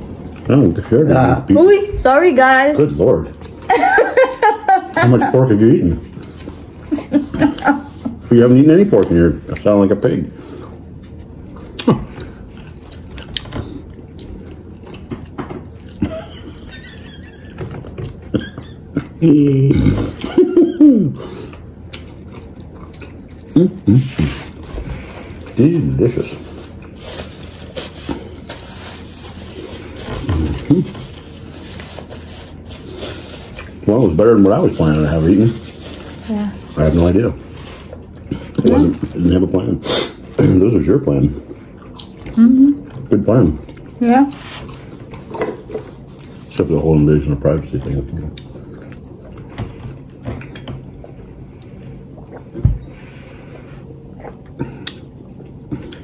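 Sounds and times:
chewing: 0:10.4 - 0:16.1, 0:21.2 - 0:33.8, 0:41.3 - 0:46.7, 0:47.6 - 0:56.0
paper napkin rustling: 0:26.2 - 0:38.0.

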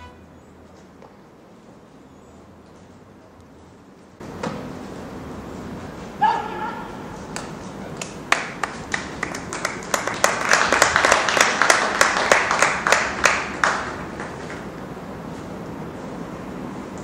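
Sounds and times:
spectators clapping: 0:07.3 - 0:14.6.

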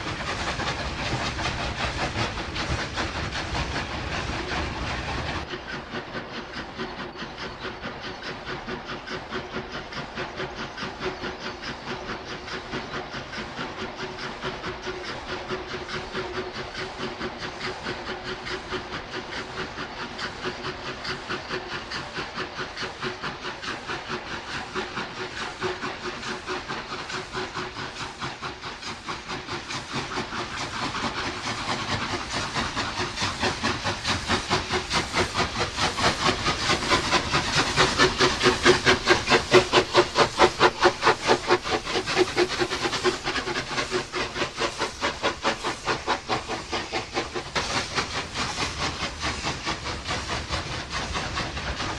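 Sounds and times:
steam hiss: 0:00.0 - 0:51.9
steam locomotive exhaust beats: 0:00.0 - 0:51.9.

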